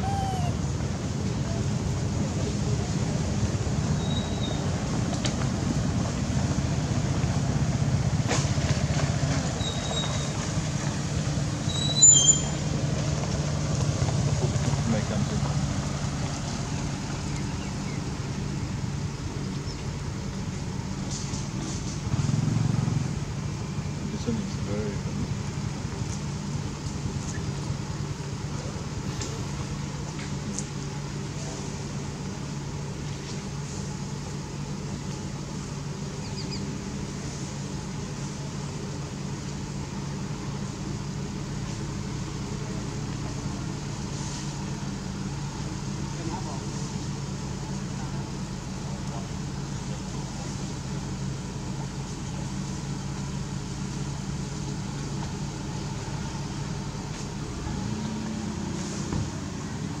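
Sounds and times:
quick high chirps: 0:00.0 - 0:00.6
constant hiss: 0:00.0 - 1:00.0
low mechanical hum: 0:00.0 - 1:00.0.

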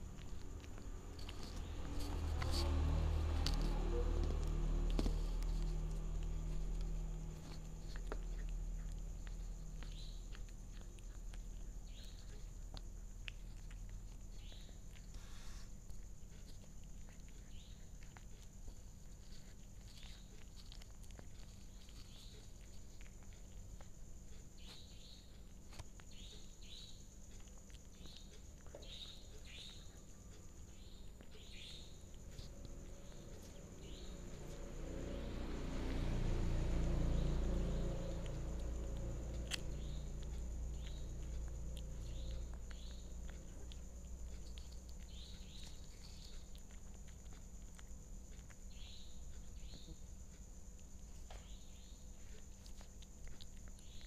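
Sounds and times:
low rumble: 0:00.0 - 0:12.7
cat chewing food: 0:00.0 - 0:54.0.

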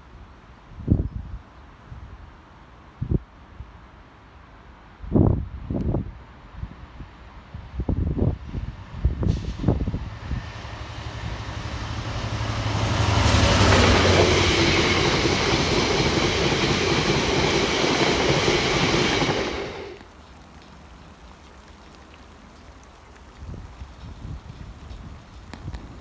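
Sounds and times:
diesel locomotive engine humming: 0:08.6 - 0:20.0
train wheels on rails: 0:09.3 - 0:20.0.

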